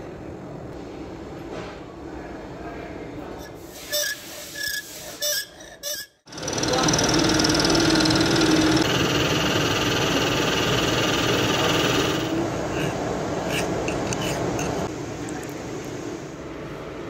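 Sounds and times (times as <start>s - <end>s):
milling machine cutting whine: 6.3s - 12.9s.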